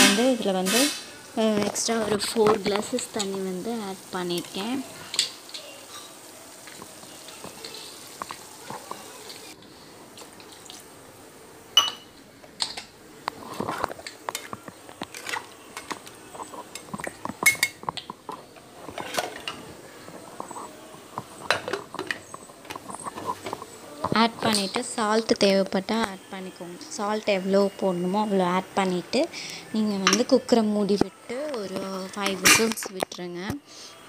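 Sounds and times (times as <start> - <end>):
pot lid fitted on: 32.4 - 32.9.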